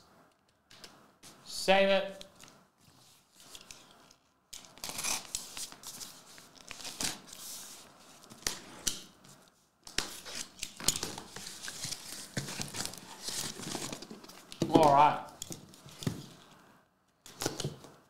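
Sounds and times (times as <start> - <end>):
knife scraping through tape: 4.6 - 6.0.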